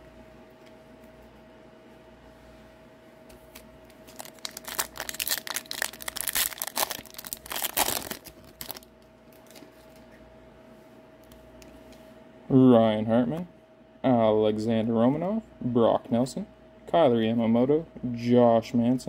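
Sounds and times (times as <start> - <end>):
plastic wrapper crinkling: 3.5 - 9.9.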